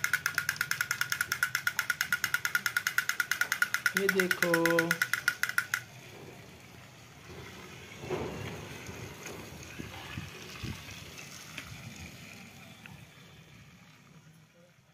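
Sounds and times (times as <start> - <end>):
toy train motor whirring: 0.0 - 6.0.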